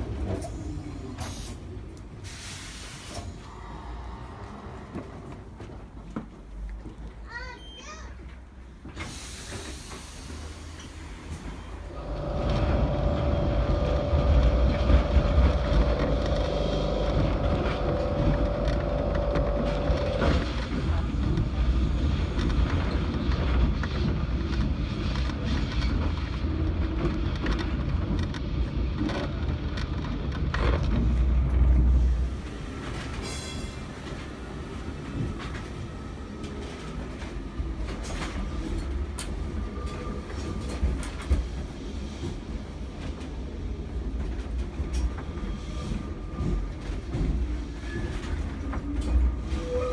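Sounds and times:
tram rumbling and rattling: 0.0 - 49.9
steady whine: 11.9 - 20.7.

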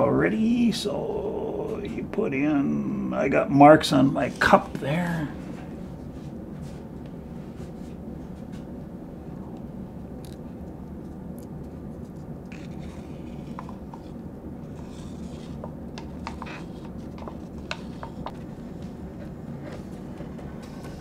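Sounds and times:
steady low hum: 0.0 - 21.0
stick scraping plastic cup: 12.0 - 18.4.

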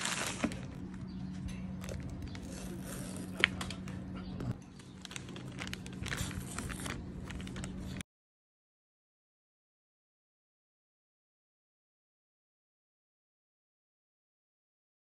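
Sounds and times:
plastic bag crinkling: 0.0 - 1.0, 4.7 - 8.0.

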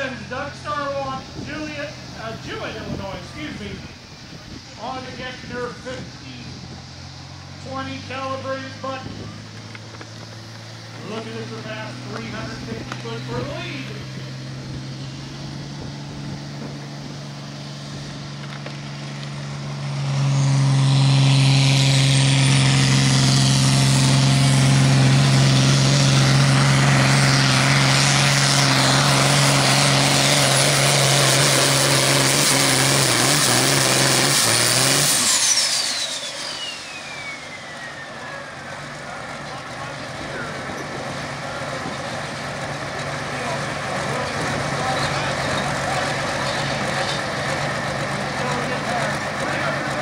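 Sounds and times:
tractor diesel engine: 0.0 - 50.0
high whine falling in pitch: 35.0 - 38.8.

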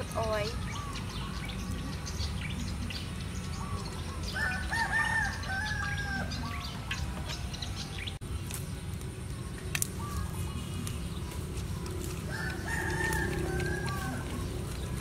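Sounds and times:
rooster crowing: 4.4 - 6.6, 12.3 - 14.5.

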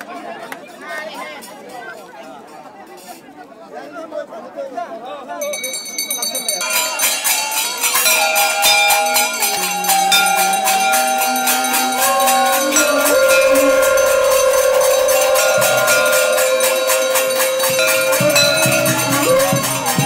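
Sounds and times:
bells: 5.4 - 20.0
hand-held gong strokes: 7.8 - 20.0
conch shells blown: 8.3 - 20.0.

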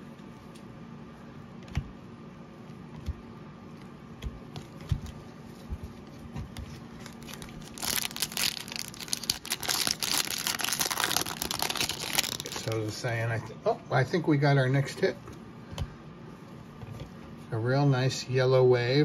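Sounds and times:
wrapper crinkling and tearing: 7.0 - 12.9.

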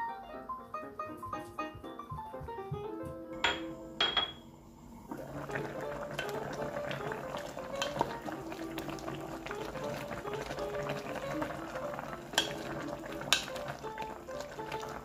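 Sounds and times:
stew bubbling in a pot: 4.8 - 15.0
spatula knocking against pot: 12.4 - 13.7.

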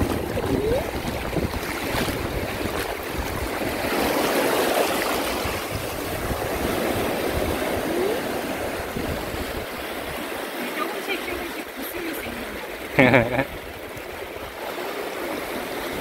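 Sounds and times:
wind buffeting microphone: 0.0 - 10.4
small waves washing on beach: 0.0 - 16.0.

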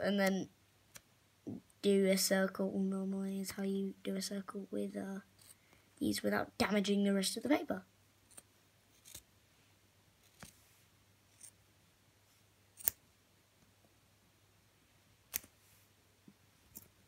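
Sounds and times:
scissors snipping foam: 12.8 - 13.0, 15.3 - 15.5.

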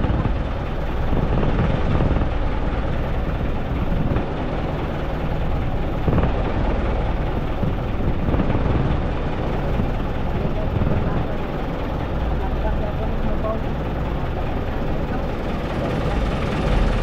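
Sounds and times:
boat engine running: 0.0 - 17.0
continuous rushing noise: 0.0 - 17.0.

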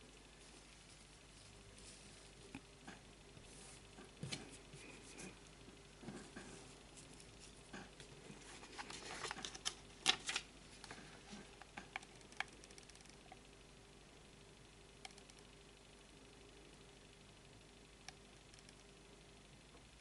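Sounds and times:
fingers rustling yarn: 0.3 - 2.6, 6.0 - 9.6.

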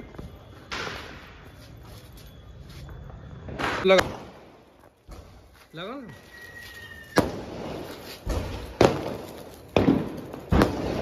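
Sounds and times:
thin high whistle: 0.0 - 4.0, 5.8 - 8.2
firecrackers banging: 6.6 - 11.0.

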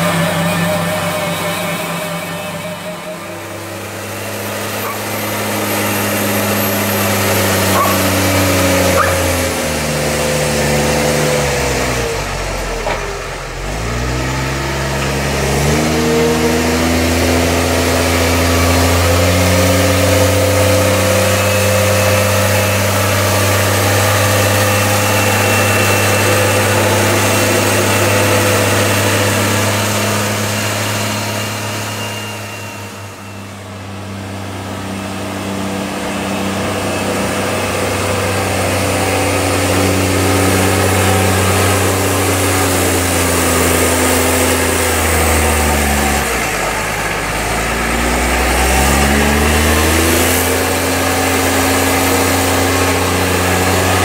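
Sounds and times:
tractor diesel engine: 0.0 - 54.0.

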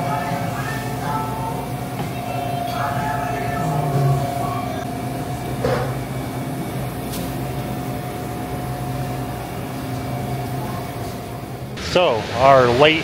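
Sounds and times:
mechanical hum: 0.0 - 13.0
faint high steady tone: 2.1 - 4.9.

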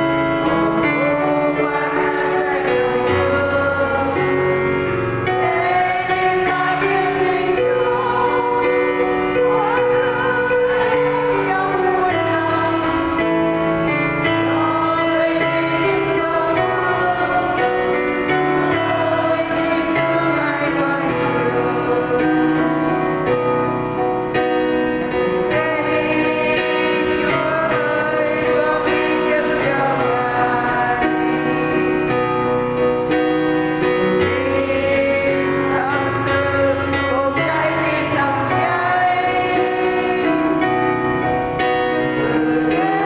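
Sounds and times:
instrumental backing track: 0.0 - 43.0
voices singing a hymn: 0.0 - 43.0.

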